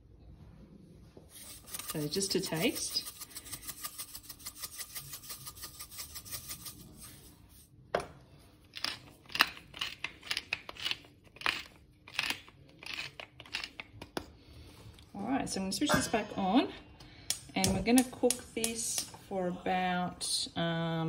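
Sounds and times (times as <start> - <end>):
spice mill grinding: 1.4 - 7.1, 8.7 - 14.1.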